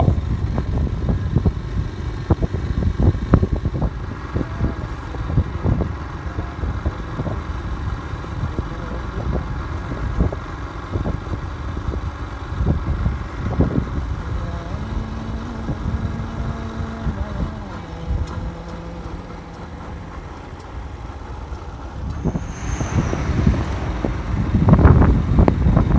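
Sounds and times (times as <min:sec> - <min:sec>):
motorcycle engine running: 0:00.0 - 0:25.9
wind buffeting microphone: 0:00.0 - 0:25.9.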